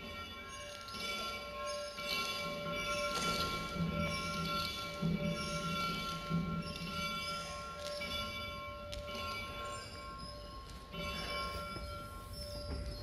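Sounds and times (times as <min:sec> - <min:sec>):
small bell ringing: 0:00.0 - 0:13.0.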